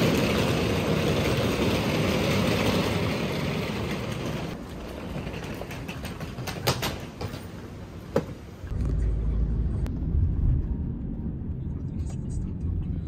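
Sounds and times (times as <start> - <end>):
suitcase wheels rolling on paving: 0.0 - 7.8.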